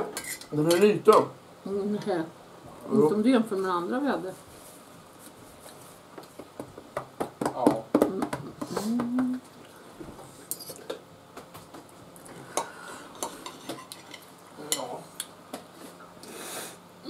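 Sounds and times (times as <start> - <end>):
cutlery scraping ceramic plate: 0.0 - 0.8, 12.6 - 14.9.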